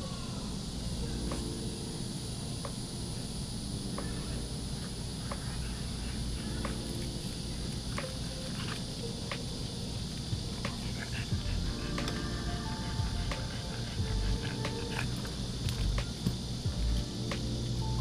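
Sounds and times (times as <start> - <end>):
high insect drone: 0.0 - 18.0
low rumble: 11.2 - 11.9, 12.6 - 16.0.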